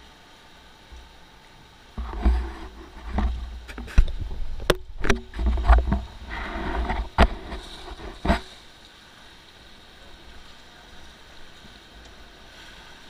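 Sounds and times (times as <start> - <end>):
water splashing against raft: 1.8 - 13.0.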